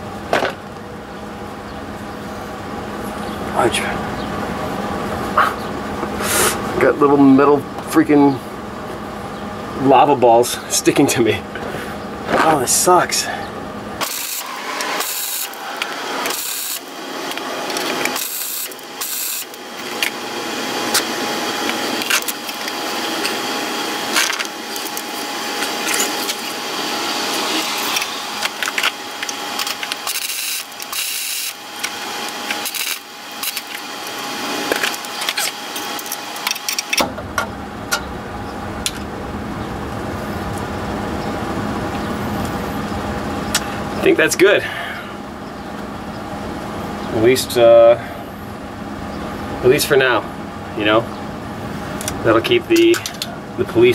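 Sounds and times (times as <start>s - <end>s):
welder arc crackling: 14.0s - 37.0s.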